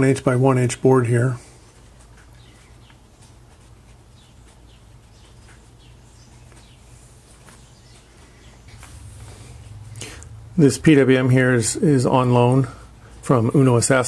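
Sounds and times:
low hum: 8.2 - 13.5.

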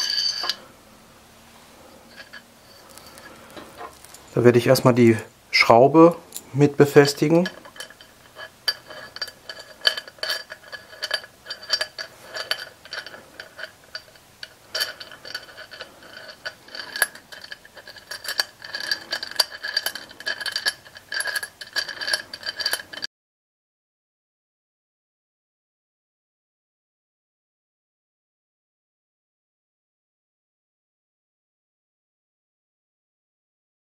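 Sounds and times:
small metal parts clinking: 0.0 - 0.7, 1.9 - 4.9, 6.2 - 23.1.

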